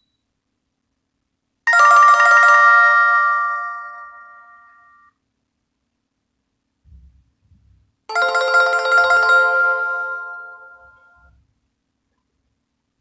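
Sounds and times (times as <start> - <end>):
chiming bell-like ringtone: 1.7 - 5.1, 8.1 - 11.3.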